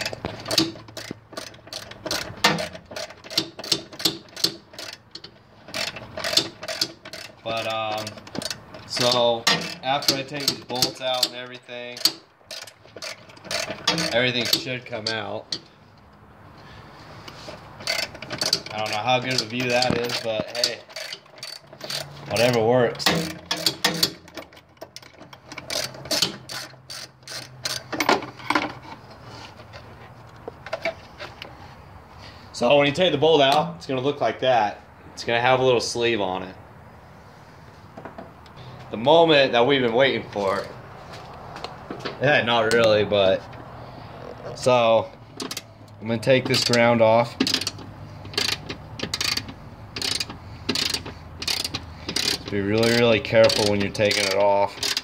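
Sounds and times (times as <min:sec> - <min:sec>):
ratchet wrench clicking: 0:00.0 - 0:15.7, 0:17.8 - 0:27.9, 0:45.4 - 0:55.0.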